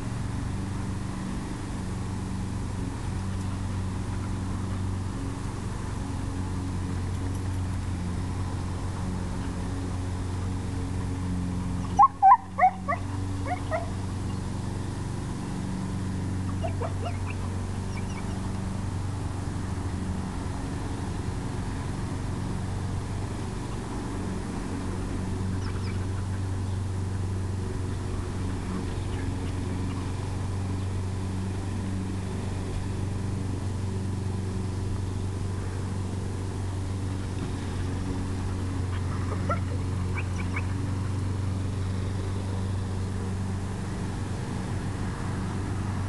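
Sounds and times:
low mechanical hum: 0.0 - 46.0
dog yelping: 11.9 - 13.9, 16.6 - 17.4, 39.4 - 39.7.

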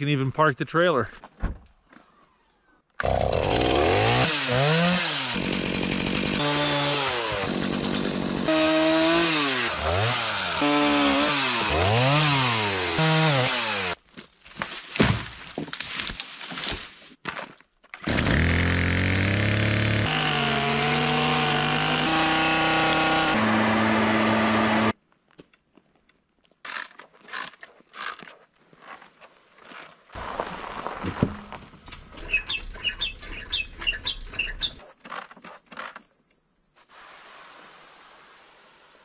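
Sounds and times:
chainsaw running: 3.0 - 14.0, 18.0 - 25.0
bird chirping: 32.2 - 34.8.

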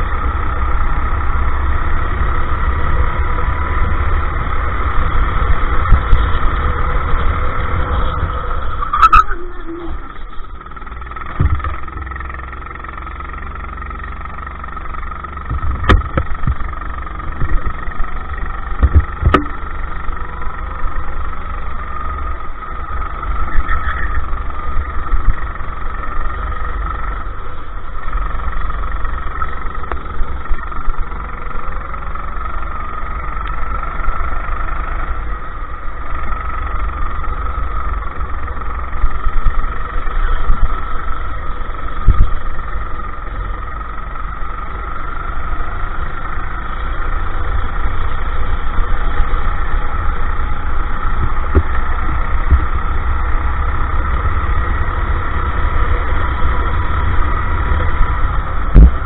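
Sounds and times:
go-kart engine running: 0.0 - 59.0
heavy low rumble: 0.0 - 59.0
sharp knocks: 15.5 - 16.6, 18.8 - 19.6.

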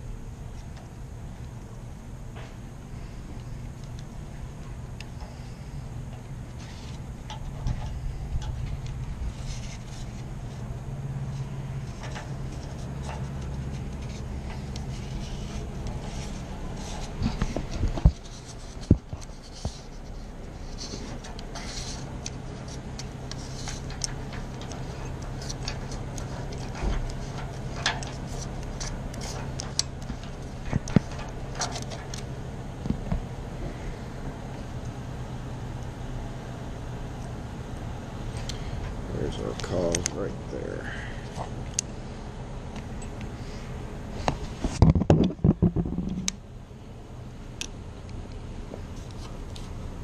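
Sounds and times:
steady low hum: 0.0 - 50.0
metal lock clicks and scrapes: 20.6 - 32.3.

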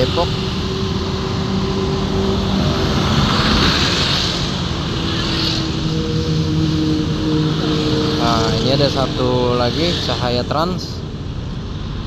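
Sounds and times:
coach engine drone: 0.0 - 12.0
motorbike engines passing: 0.0 - 12.0.

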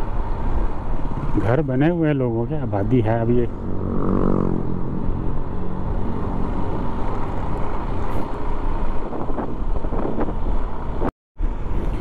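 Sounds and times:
wind on microphone: 3.5 - 11.1.

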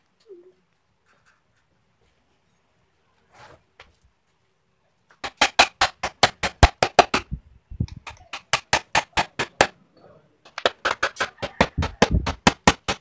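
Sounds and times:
hammer striking wooden frame: 5.2 - 7.4, 8.0 - 9.8, 10.5 - 13.0.

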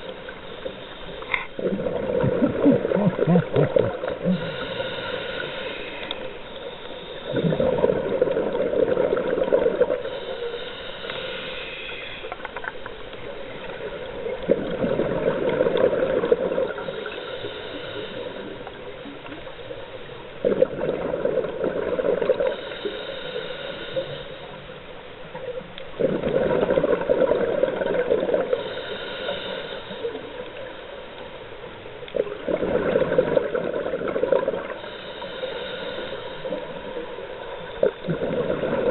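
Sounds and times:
hissing regulator inhale: 0.0 - 1.7, 4.1 - 8.0, 9.8 - 12.8, 16.6 - 20.2, 22.3 - 24.9, 28.4 - 31.4, 34.6 - 37.9
exhaled bubbles underwater: 0.0 - 5.5, 7.2 - 10.3, 12.7 - 19.5, 20.4 - 24.2, 25.2 - 28.9, 32.1 - 38.9.

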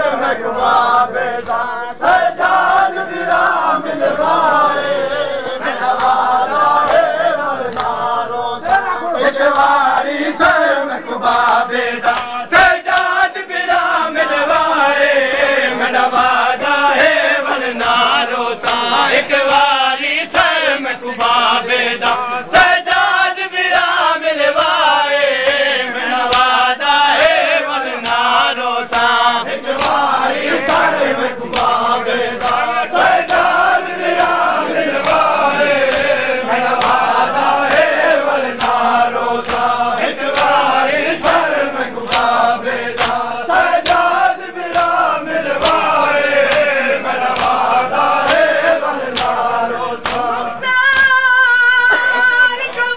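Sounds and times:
voices chanting: 0.0 - 52.9
hand slaps on chest: 28.0 - 28.3, 29.7 - 30.9, 31.5 - 31.8, 32.4 - 32.6, 36.8 - 37.0, 38.6 - 38.8, 39.4 - 40.6, 42.1 - 42.4, 43.0 - 43.2, 43.8 - 45.0, 45.6 - 45.9, 47.3 - 48.4, 49.1 - 49.4, 50.0 - 50.3.

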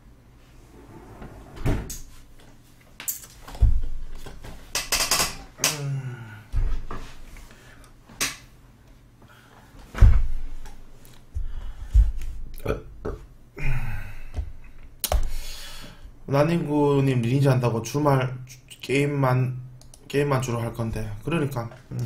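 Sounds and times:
dull thumps and knocks: 3.5 - 4.6
chair creak: 4.2 - 5.8.

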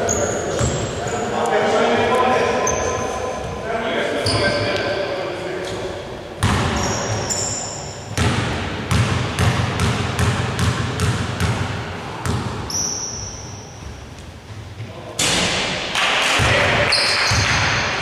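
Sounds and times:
basketball bouncing on wooden floor: 8.2 - 12.5.

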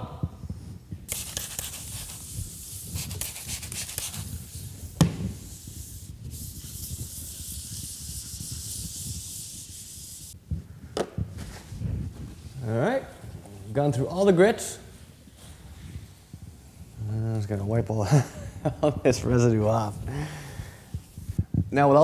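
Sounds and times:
sandpaper rubbing hard surface: 1.1 - 10.4.

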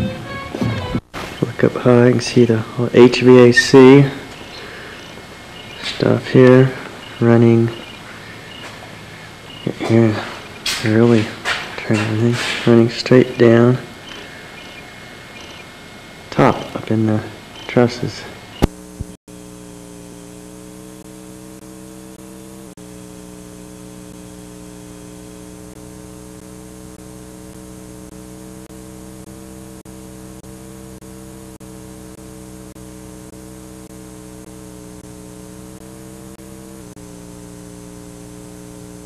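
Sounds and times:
electrical hum with tape hiss: 0.0 - 39.0
tape glitches: 0.0 - 39.0.

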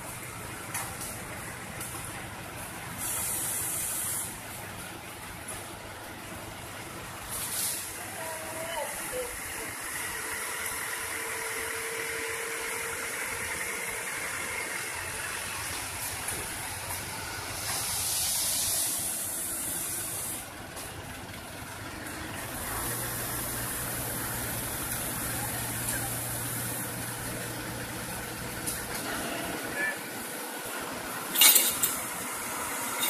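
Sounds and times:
low engine hum: 0.0 - 31.3
road machinery engines: 0.0 - 33.0
loud hiss: 2.8 - 4.6, 7.1 - 8.2, 10.2 - 20.5.

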